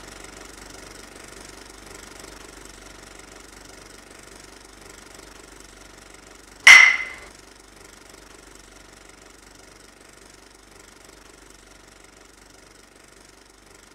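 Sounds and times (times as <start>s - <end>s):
loud ringing bang: 6.7s - 7.2s.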